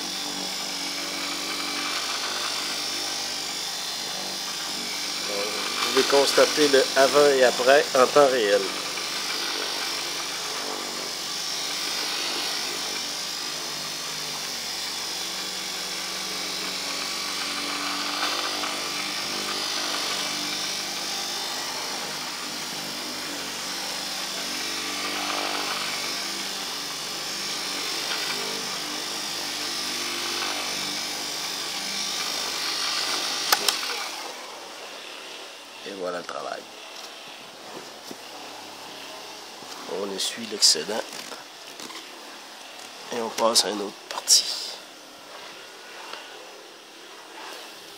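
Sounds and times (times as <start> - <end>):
electric polisher running: 0.0 - 47.9.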